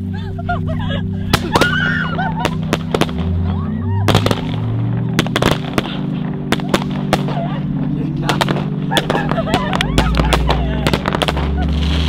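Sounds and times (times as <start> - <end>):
low droning tones: 0.0 - 12.0
fireworks bangs and pops: 2.4 - 3.3, 4.1 - 7.5, 8.2 - 12.0.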